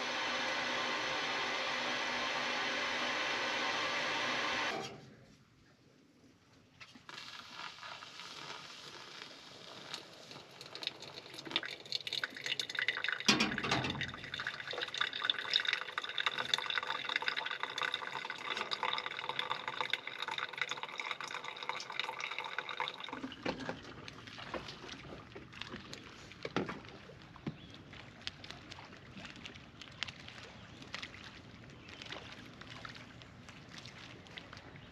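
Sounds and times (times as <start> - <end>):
coffee dripping through filter: 7.0 - 26.7
water pouring from kettle: 7.1 - 25.0.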